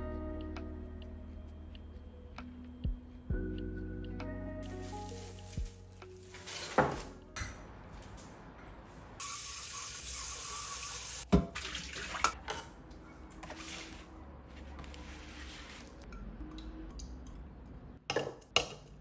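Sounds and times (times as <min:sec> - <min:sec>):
water running: 0:09.2 - 0:12.4.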